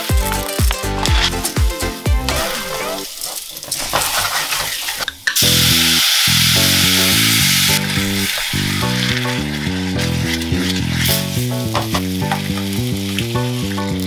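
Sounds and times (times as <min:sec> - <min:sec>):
background music: 0:00.0 - 0:03.1, 0:05.4 - 0:14.0
wine sizzling in hot pan: 0:00.0 - 0:14.0
wooden spoon stirring rice: 0:08.2 - 0:13.8.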